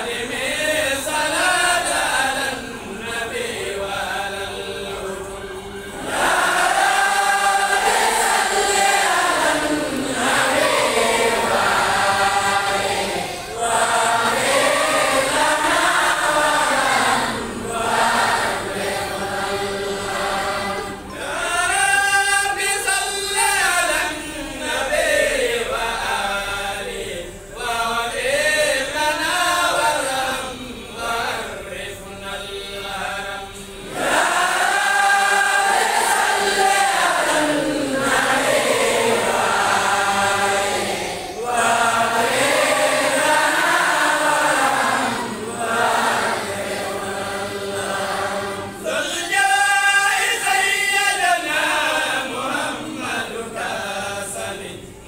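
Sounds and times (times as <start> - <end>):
crowd chanting in unison: 0.0 - 55.0.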